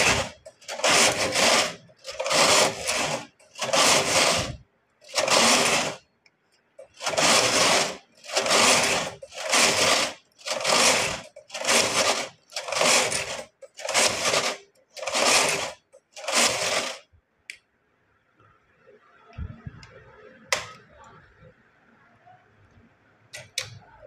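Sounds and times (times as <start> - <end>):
knitting machine carriage swishing: 0.0 - 6.0, 6.8 - 17.1.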